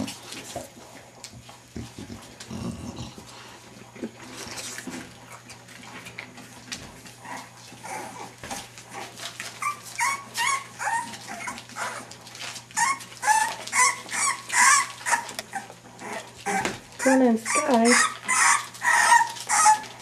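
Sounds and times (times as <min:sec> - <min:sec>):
puppies whining and yipping: 0:07.2 - 0:20.0.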